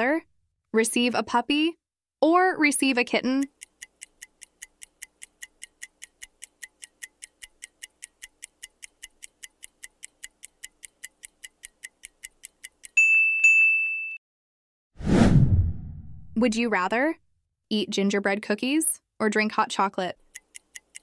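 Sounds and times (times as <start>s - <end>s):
clock ticking: 2.6s - 13.0s, 19.5s - 21.0s
high steady timer tone: 2.8s - 13.6s.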